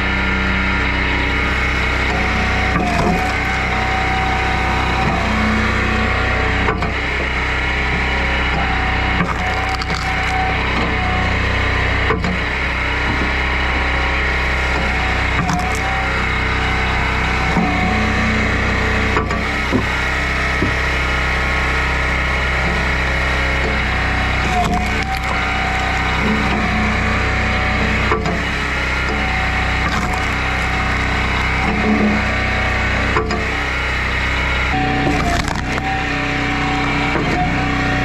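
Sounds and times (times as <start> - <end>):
engine running: 0.0 - 38.0
wood cracking and splitting: 1.3 - 5.9, 8.0 - 11.4, 14.4 - 18.0, 22.8 - 38.0.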